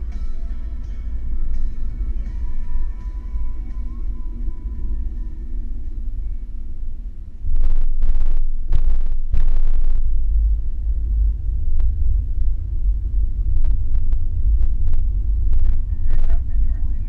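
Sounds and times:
road and wind noise inside car: 0:00.0 - 0:17.0.

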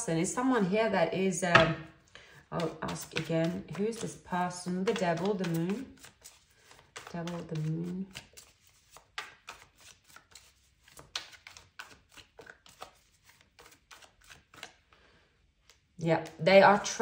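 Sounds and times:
cards being shuffled: 0:02.6 - 0:15.0.

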